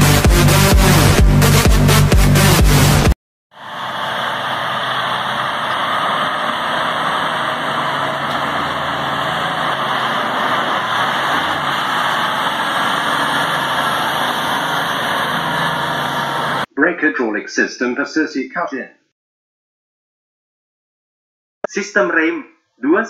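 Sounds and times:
haul truck diesel engine droning: 0:02.8 - 0:16.7.

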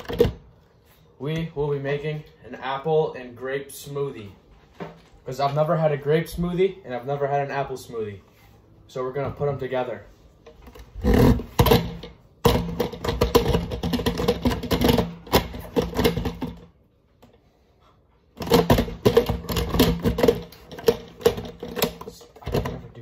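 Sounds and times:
blender jar rattling: 0:11.0 - 0:16.7, 0:18.4 - 0:23.0.

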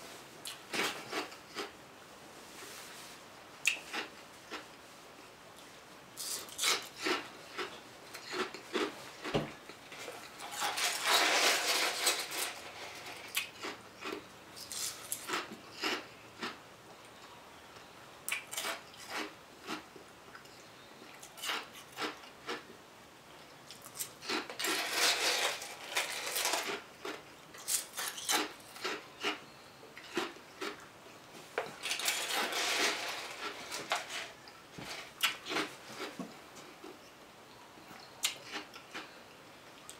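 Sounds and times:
ice crunching while chewed: 0:00.5 - 0:01.7, 0:06.2 - 0:09.3, 0:10.0 - 0:16.6, 0:18.3 - 0:22.7, 0:23.5 - 0:29.4, 0:30.0 - 0:30.9, 0:31.6 - 0:36.1, 0:38.2 - 0:39.2
plastic spoon scraping in cup: 0:10.0 - 0:13.2, 0:24.3 - 0:26.8, 0:31.8 - 0:36.1.

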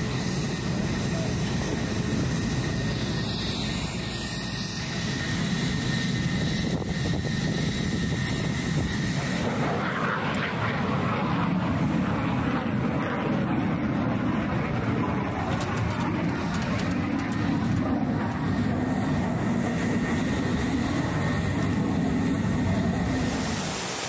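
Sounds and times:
aircraft engines rumbling: 0:00.0 - 0:24.0
faint high whine: 0:20.4 - 0:24.0.

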